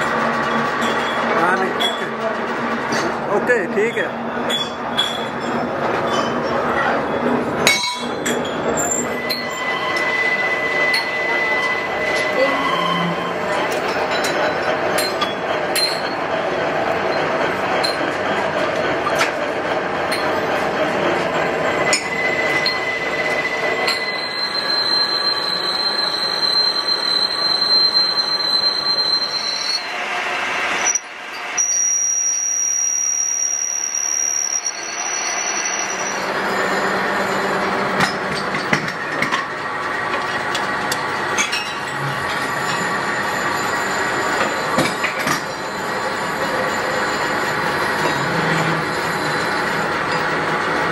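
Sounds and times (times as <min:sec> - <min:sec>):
metal lathe running: 0:00.0 - 0:50.9
high squeal of cutting tool: 0:08.2 - 0:15.4, 0:21.9 - 0:38.2, 0:41.6 - 0:50.3.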